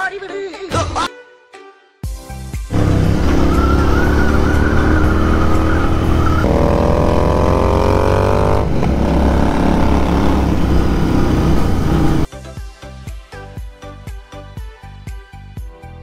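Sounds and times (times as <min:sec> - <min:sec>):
motorcycle engine accelerating: 0:02.7 - 0:12.3.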